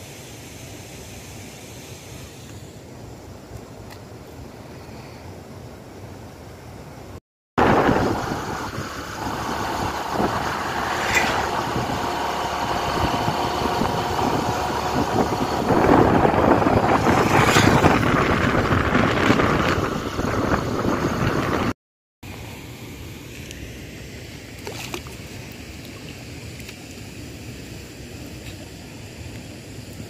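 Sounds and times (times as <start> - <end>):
vehicle engine running: 7.6 - 21.7
wind noise on microphone: 7.6 - 21.8.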